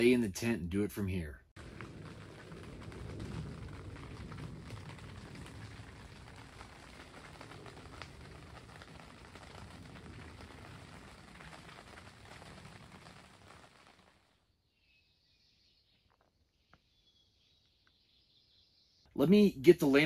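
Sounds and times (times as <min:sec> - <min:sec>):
rain pattering on tent fabric: 0:01.6 - 0:14.5.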